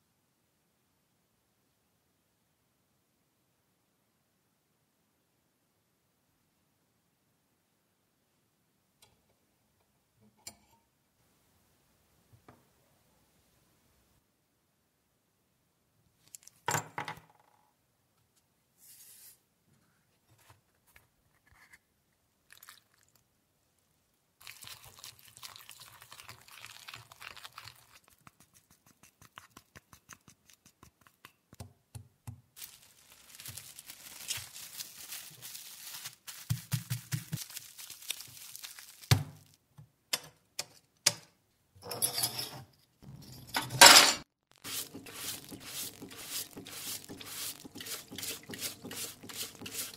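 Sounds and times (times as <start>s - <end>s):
plastic film crinkling: 32.6s - 39.6s, 44.4s - 49.9s.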